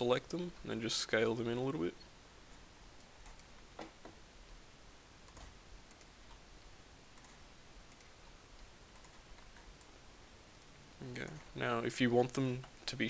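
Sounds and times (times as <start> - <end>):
room hiss: 0.0 - 13.0
mouse and keyboard clicks: 5.3 - 6.4, 8.9 - 9.9.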